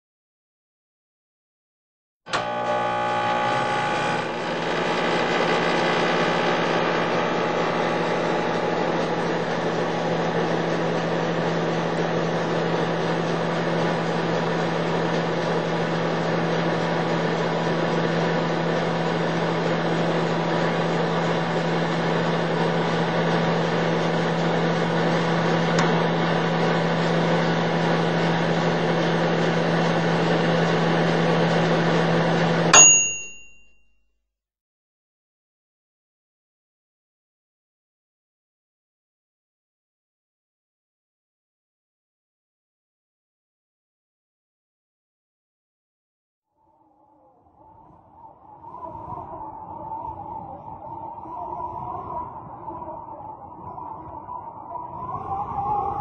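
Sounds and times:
droning hum: 0:02.3 - 0:12.0, 0:47.2 - 0:56.0.

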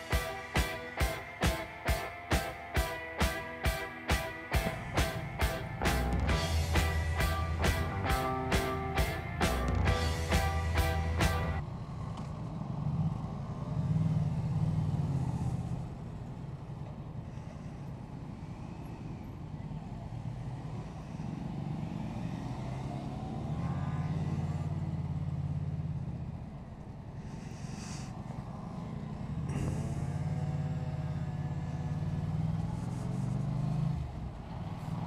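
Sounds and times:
motorcycle engine accelerating: 0:00.0 - 0:16.0, 0:28.4 - 0:35.0
wind and road noise: 0:00.0 - 0:35.0.

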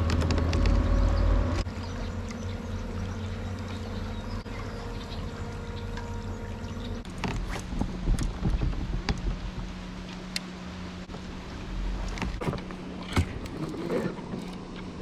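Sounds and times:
wind rumble on microphone: 0:06.7 - 0:15.0.

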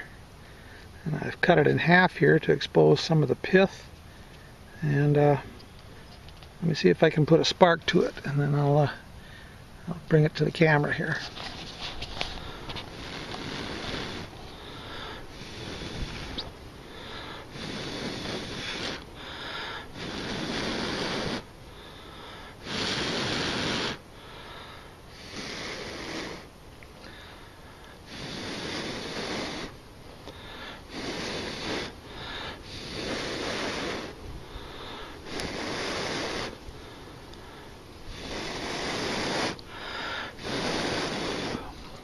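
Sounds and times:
person blowing breaths: 0:11.2 - 0:42.0.

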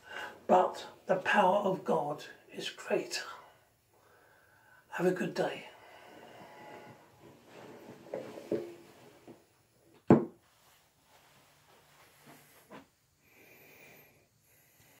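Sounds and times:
faint knocks and rustles: 0:06.5 - 0:13.0.

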